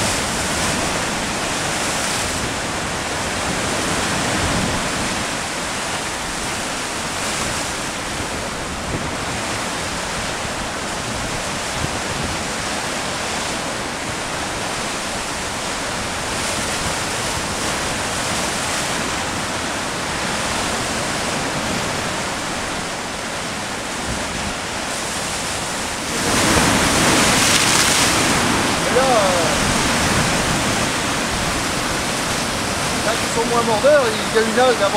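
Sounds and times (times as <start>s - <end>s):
surf breaking against rocks: 0.0s - 34.9s.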